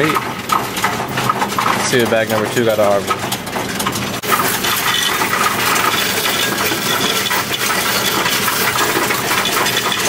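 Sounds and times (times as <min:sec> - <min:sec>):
coin machine rattling: 0:00.0 - 0:10.0
coins clattering in a tray: 0:04.2 - 0:10.0.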